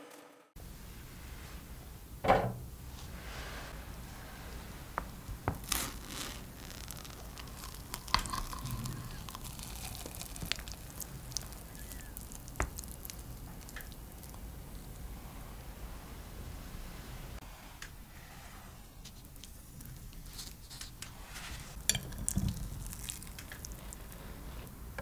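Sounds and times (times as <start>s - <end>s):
spatula squishing and tearing food: 5.5s - 14.4s, 19.4s - 24.7s.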